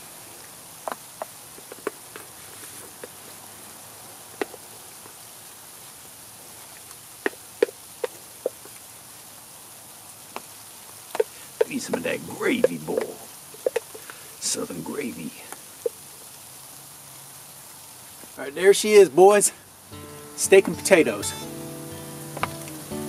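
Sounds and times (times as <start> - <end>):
sleet hissing: 11.2 - 16.3, 18.4 - 23.0.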